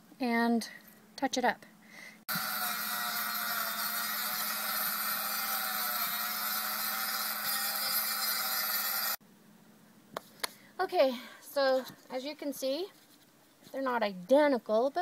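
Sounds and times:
rotary tool grinding wood: 2.3s - 9.2s.

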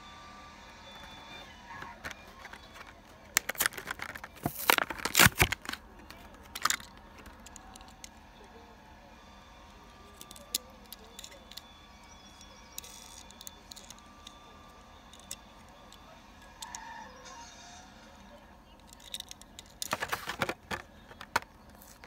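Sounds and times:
toy car handled clicks: 2.0s - 8.1s, 10.2s - 11.6s, 12.4s - 14.4s, 15.1s - 15.5s, 18.8s - 20.5s.

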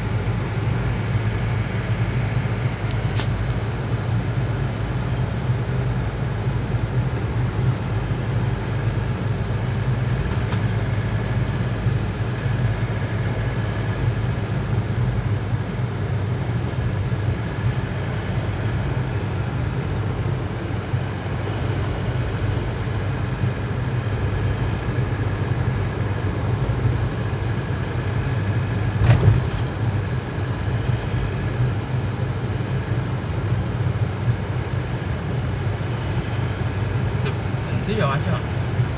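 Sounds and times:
car road and engine rumble: 0.0s - 38.9s.

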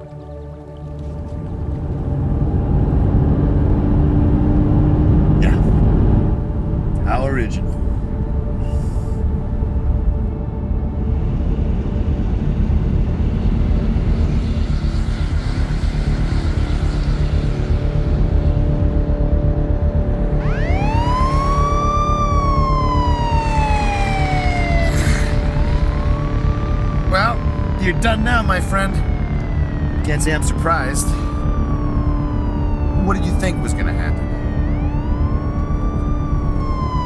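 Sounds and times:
dense low rumble: 0.0s - 37.0s
police siren wailing: 8.0s - 37.0s.

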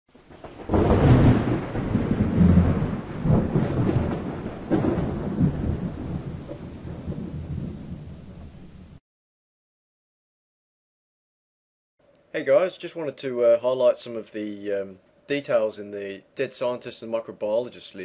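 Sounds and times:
thunder cracks and rumbles: 0.2s - 9.0s.

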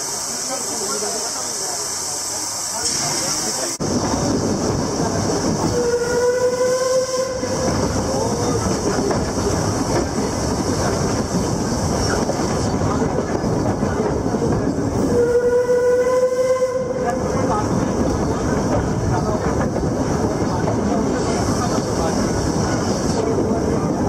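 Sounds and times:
moving train rattling: 0.0s - 24.0s
steam locomotive whistle: 5.7s - 8.1s, 15.0s - 17.4s.

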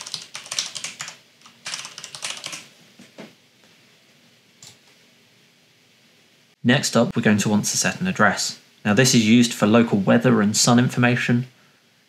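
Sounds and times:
computer keyboard typing: 0.0s - 2.7s.

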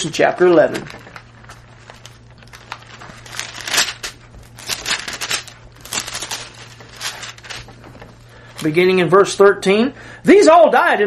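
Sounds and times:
steady low hum: 0.0s - 10.8s
paper pages rustling: 0.4s - 8.9s.

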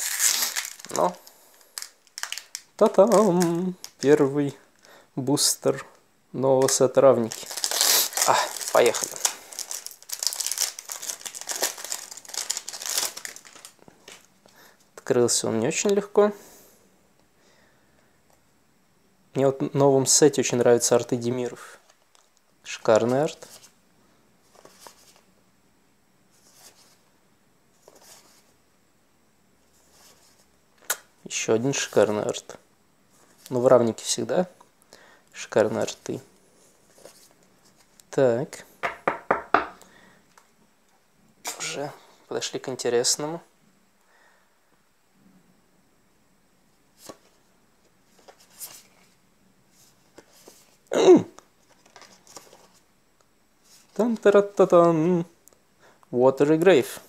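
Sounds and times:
trading cards rustling: 0.0s - 4.3s, 6.6s - 14.3s, 51.6s - 52.8s.

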